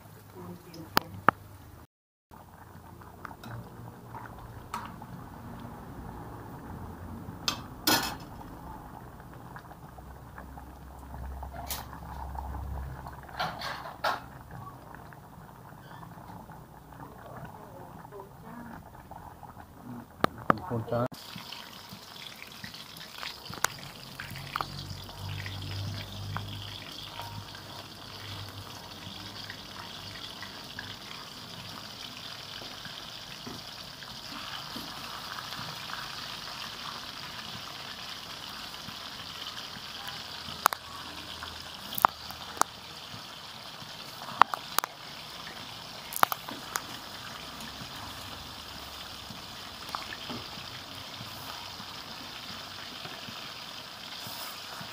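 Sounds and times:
food hissing in pan: 51.0s - 54.9s.

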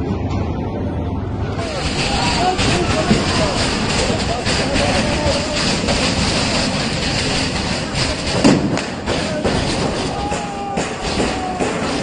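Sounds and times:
loud rushing din: 1.5s - 12.0s
thud: 1.8s - 12.0s
crowd of fans shouting: 9.1s - 12.0s.

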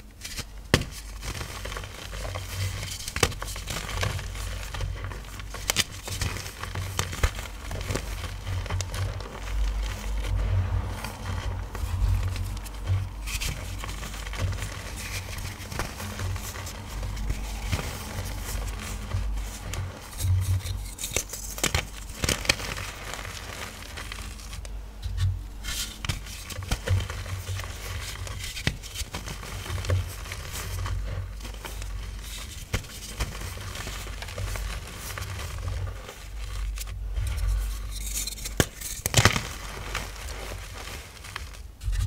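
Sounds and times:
chalk blocks crunching by hand: 0.1s - 42.0s.

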